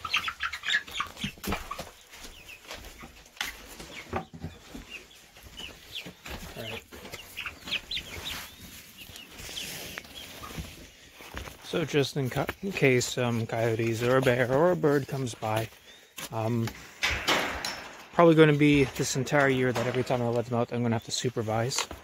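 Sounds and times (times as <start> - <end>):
young chickens chirping and peeping: 0.0 - 22.0
sharp knocks: 17.0 - 18.2.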